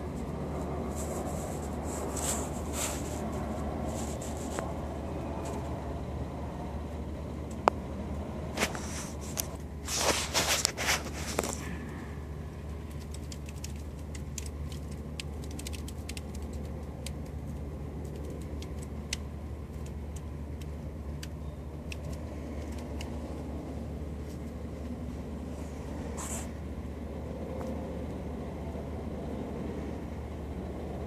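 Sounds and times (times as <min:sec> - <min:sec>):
sharp clicks: 0:12.9 - 0:23.2.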